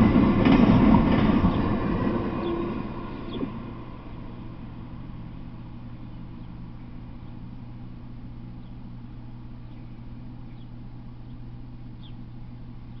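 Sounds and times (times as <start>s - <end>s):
steady low hum: 0.0s - 13.0s
faint high bird chirps: 8.6s - 8.9s, 9.6s - 13.0s.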